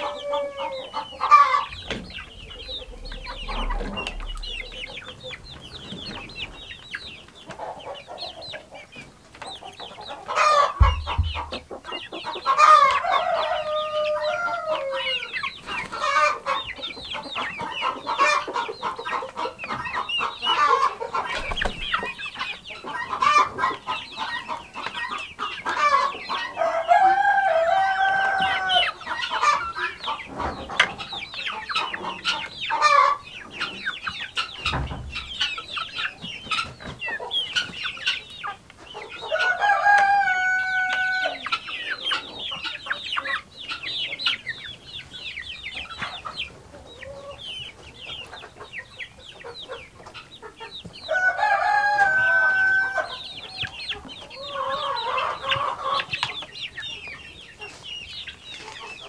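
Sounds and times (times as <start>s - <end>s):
chicken long held call: 0.0s - 1.8s
chickens clucking: 0.0s - 59.0s.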